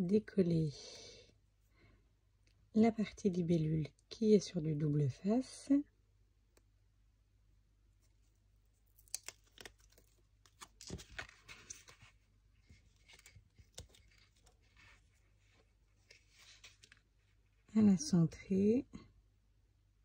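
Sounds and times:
paper rustling: 8.0 - 17.6
tape backing peeling: 8.8 - 12.0
paper crackles and clicks: 8.8 - 17.1.

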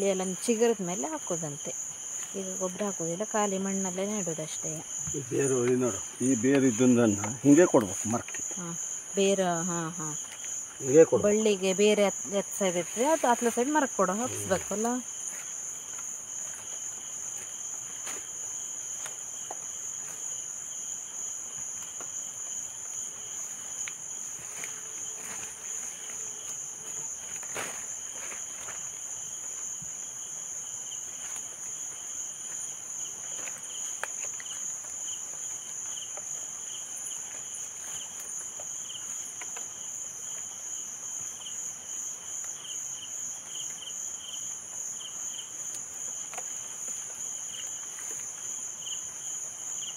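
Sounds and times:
high-pitched insect chorus: 0.0 - 49.9
lower pulsing insect call: 0.0 - 49.9.

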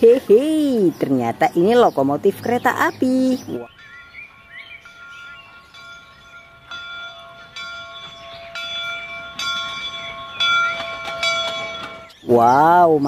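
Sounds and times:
locomotive bell ringing: 2.5 - 12.5.

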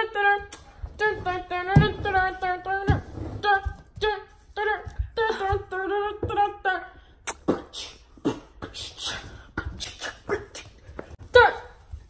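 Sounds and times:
girl singing: 0.0 - 10.7
beatboxing mouth sounds: 7.2 - 10.8.

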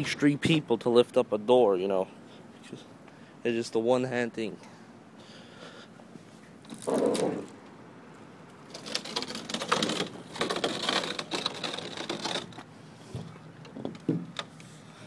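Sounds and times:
metallic rattling and clicking: 8.6 - 12.6.

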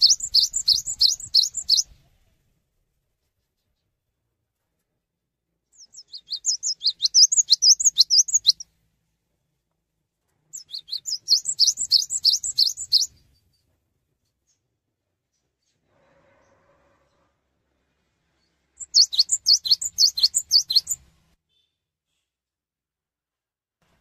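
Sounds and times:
bird singing fast trilled phrases: 0.0 - 1.9, 5.8 - 8.6, 10.6 - 13.2, 18.8 - 21.0.

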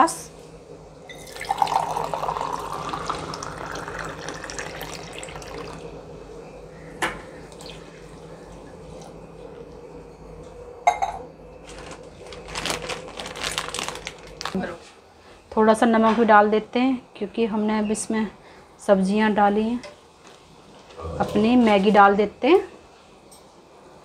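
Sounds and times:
water pouring into gravy: 1.2 - 5.8.

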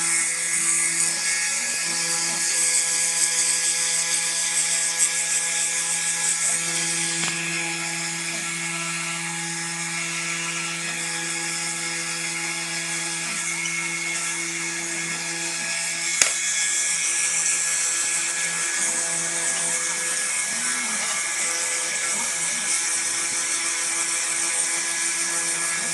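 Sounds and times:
spindle motor high whine: 0.0 - 25.9
sharp click: 16.2 - 16.5.

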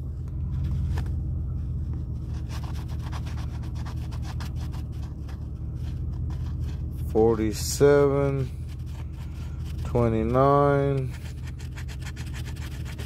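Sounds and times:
steady low hum: 0.0 - 13.0
coin scratching ticket: 9.8 - 13.0.

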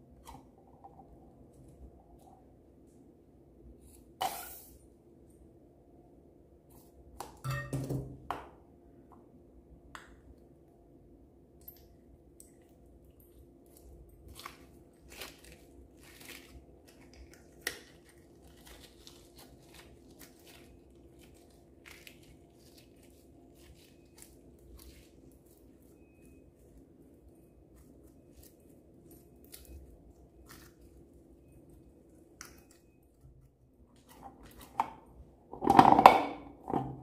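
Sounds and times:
sticky slime squelching: 13.7 - 32.9.

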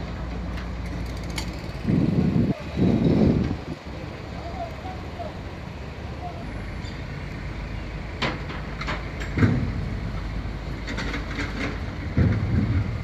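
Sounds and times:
boat engine rumbling: 0.0 - 13.0
knocks and clatters: 8.2 - 9.9, 10.8 - 13.0.

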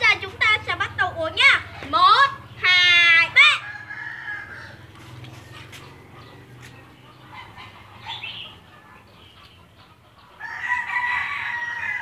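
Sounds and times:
drawn-out animal call: 0.0 - 12.0.

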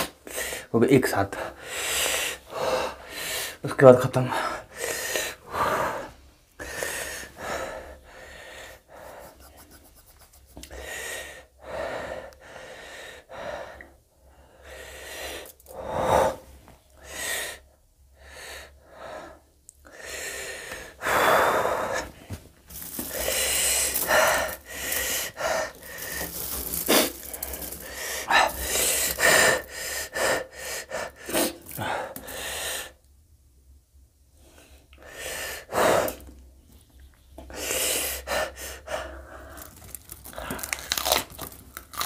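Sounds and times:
man sniffing: 9.0 - 10.9
man gasping and breathing hard: 17.0 - 33.0, 37.5 - 41.1.

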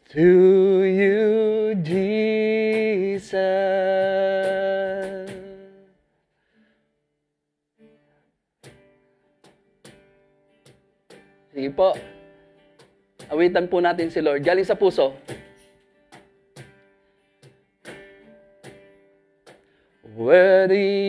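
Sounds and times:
person singing: 0.0 - 5.9, 20.0 - 21.0
acoustic guitar: 0.0 - 21.0.

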